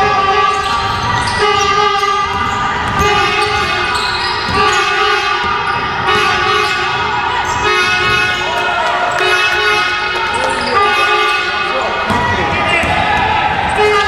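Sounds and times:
ball dribbled on wooden floor: 0.1s - 7.0s, 12.1s - 14.0s
long horn-like tones: 4.6s - 12.0s.

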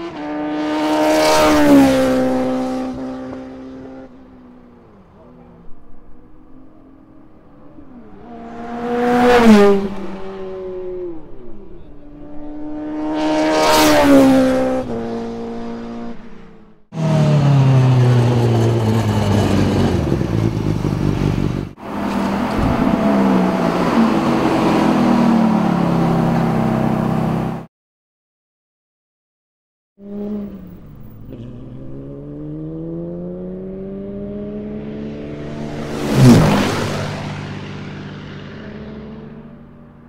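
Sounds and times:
race cars passing by fast: 0.0s - 27.7s, 30.0s - 40.0s
car engines running steadily: 1.9s - 13.6s, 14.8s - 27.6s, 30.0s - 40.0s
sports car pulling away: 17.0s - 27.6s, 30.1s - 40.0s.

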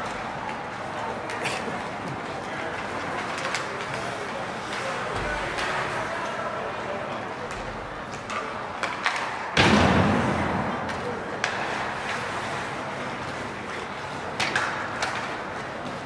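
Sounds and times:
murmur of voices: 0.0s - 16.0s
hockey stick clicks: 3.0s - 4.0s, 7.5s - 9.6s, 14.3s - 16.0s.

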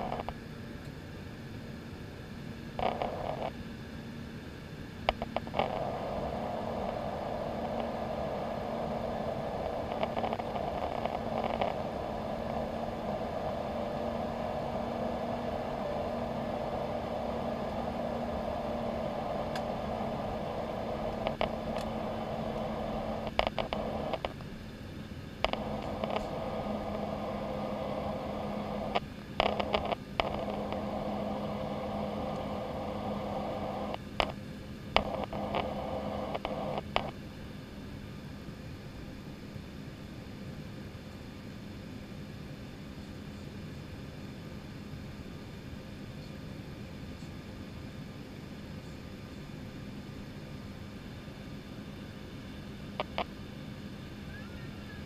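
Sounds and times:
airliner cabin engine noise: 0.0s - 55.0s
constant hum: 0.0s - 55.0s.

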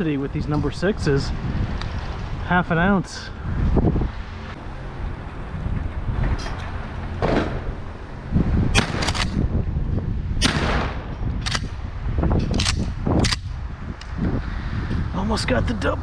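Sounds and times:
wind rumbling on microphone: 0.0s - 16.0s
shotgun firing: 8.7s - 9.4s, 10.4s - 11.7s
gun action clacks: 8.8s - 9.4s, 11.4s - 11.8s, 12.4s - 14.2s.

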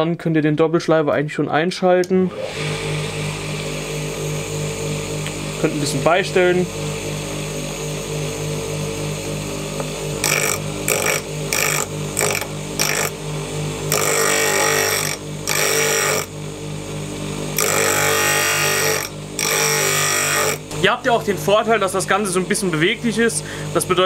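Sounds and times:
bench grinder humming: 2.2s - 24.0s
drill bit grinding on wheel: 10.1s - 13.2s, 13.9s - 16.4s, 17.6s - 20.7s.

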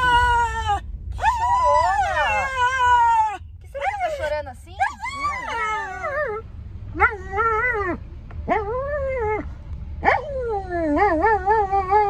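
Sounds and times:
small dog whining howls: 0.0s - 3.4s
car low rumble: 0.0s - 12.0s.

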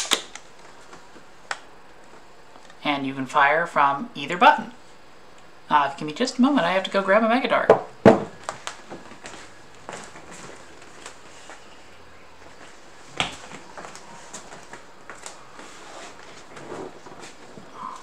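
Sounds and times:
footsteps: 8.2s - 11.7s, 12.4s - 18.0s.

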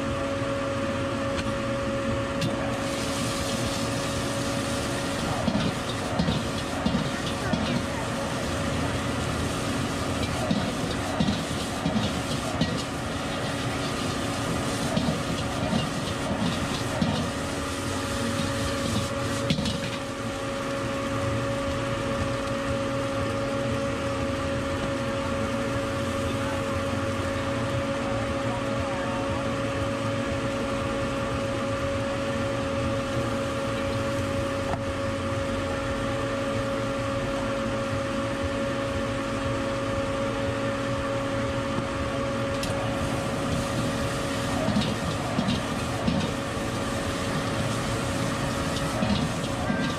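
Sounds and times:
steady mechanical hum: 0.0s - 49.9s
metal spatula scraping wok: 9.7s - 20.1s.

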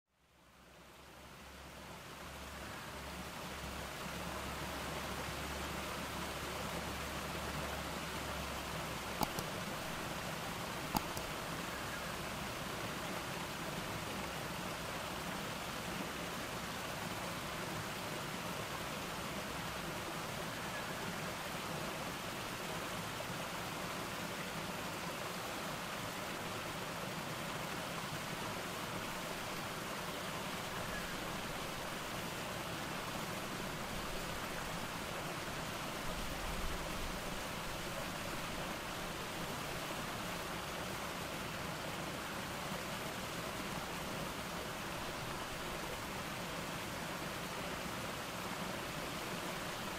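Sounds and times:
water splashing over rocks: 9.1s - 11.5s
short clicks: 9.2s - 9.5s, 10.9s - 11.3s.

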